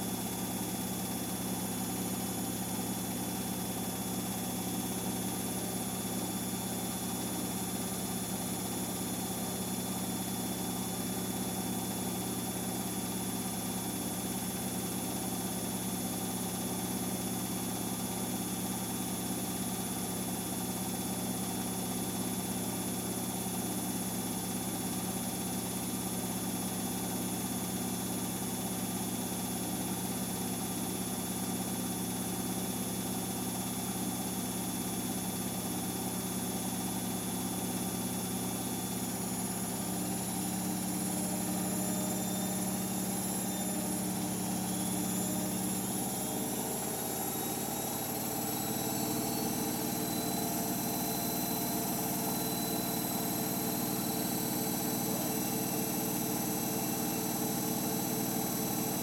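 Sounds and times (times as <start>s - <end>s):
washing machine spinning hum: 0.0s - 59.0s.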